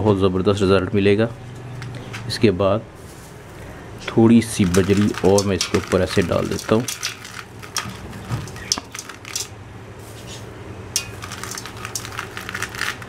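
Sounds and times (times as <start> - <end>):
gravel stones rattling into metal pot: 3.0 - 13.0.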